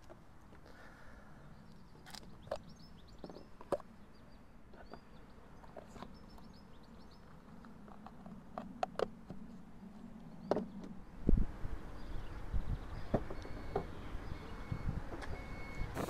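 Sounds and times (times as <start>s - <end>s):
birds twittering: 0.6s - 8.1s, 9.4s - 16.0s
plastic caps clicking and knocking: 7.5s - 9.5s.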